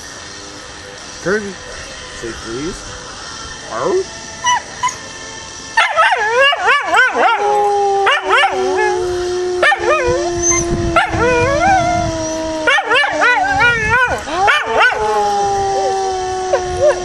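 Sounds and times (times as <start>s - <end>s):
dog howling and yipping: 4.4s - 5.1s, 5.8s - 17.0s
low steady dog howl: 5.8s - 17.0s.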